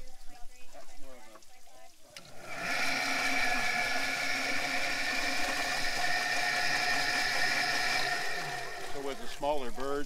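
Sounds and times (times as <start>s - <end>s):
chicken plucker machine whining: 2.2s - 9.8s.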